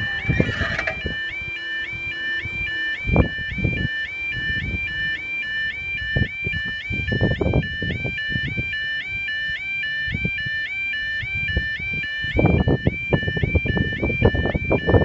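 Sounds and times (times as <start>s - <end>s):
level crossing alarm warbling: 0.0s - 10.2s.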